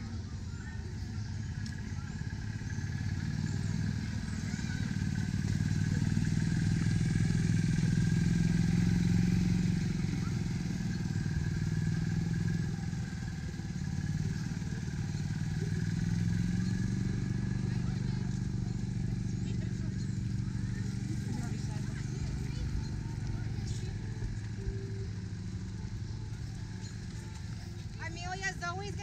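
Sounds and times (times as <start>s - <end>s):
small cart engine running: 0.0s - 29.0s.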